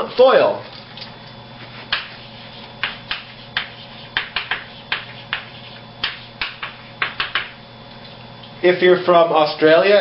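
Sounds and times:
chalk scratching on blackboard: 1.6 - 7.5.

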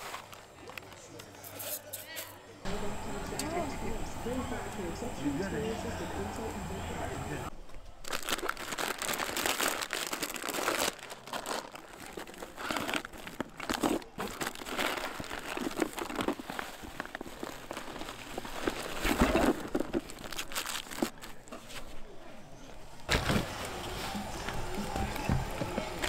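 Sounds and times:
crinkling and rustling: 0.0 - 2.0, 7.6 - 26.0.

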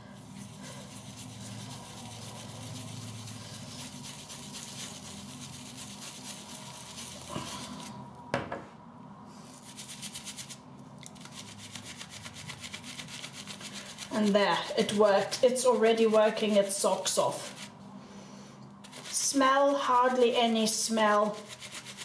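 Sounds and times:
brush whipping lather: 0.0 - 8.0, 9.6 - 17.8, 18.8 - 22.0
shaving brush scrubbing soap: 0.0 - 8.0, 9.6 - 17.8, 18.8 - 22.0.

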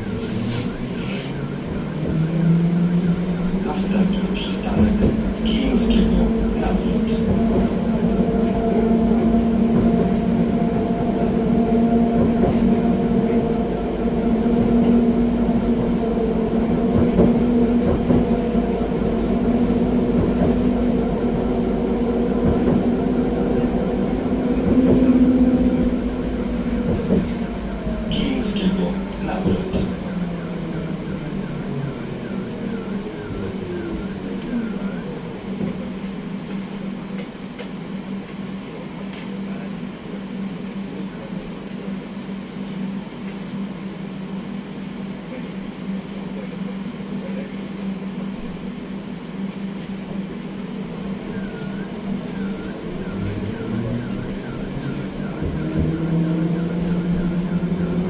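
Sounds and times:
tram motor whine: 0.0 - 58.0.

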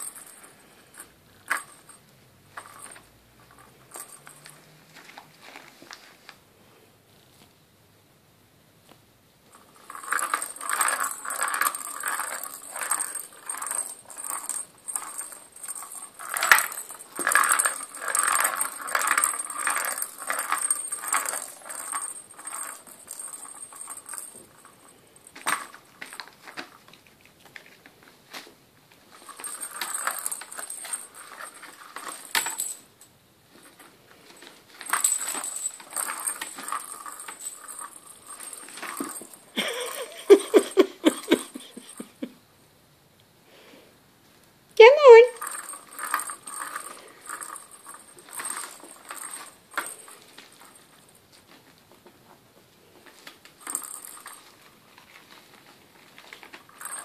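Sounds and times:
jingling: 0.0 - 5.4, 9.5 - 26.9, 29.1 - 42.3, 45.0 - 51.6, 53.4 - 57.0
plastic ball rattling: 9.5 - 28.1, 29.0 - 42.2, 45.0 - 51.8, 53.0 - 57.0.

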